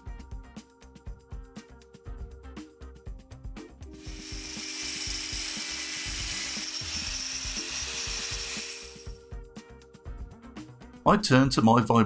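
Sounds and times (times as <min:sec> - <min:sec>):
background music: 0:00.0 - 0:12.0
angle grinder cutting metal: 0:04.0 - 0:09.2.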